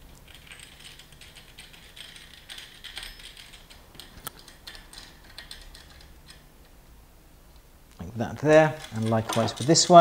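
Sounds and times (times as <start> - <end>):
screw fastenings clicking and scraping: 8.8 - 10.0.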